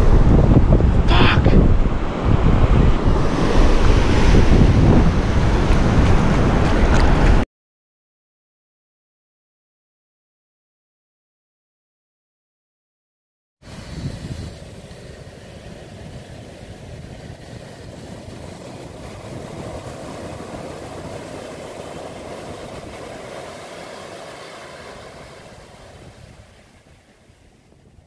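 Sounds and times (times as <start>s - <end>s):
ocean surf on a beach: 0.0s - 7.4s, 13.6s - 28.0s.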